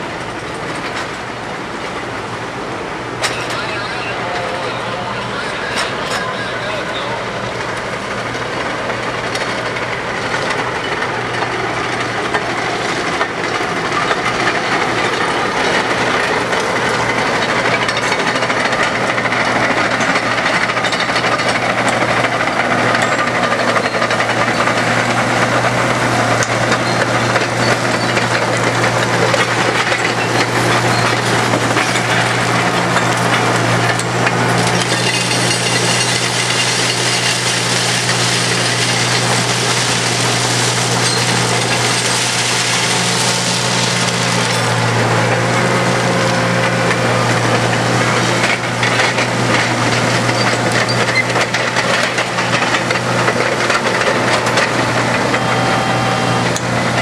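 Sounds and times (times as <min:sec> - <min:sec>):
diesel engines running: 0:00.0 - 0:57.0
mechanical clatter: 0:26.4 - 0:45.6, 0:48.1 - 0:55.3.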